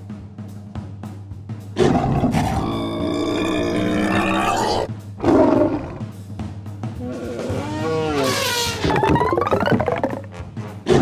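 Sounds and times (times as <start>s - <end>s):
background music: 0.0s - 11.0s
cartoon animal roar: 1.8s - 6.0s, 7.0s - 10.2s.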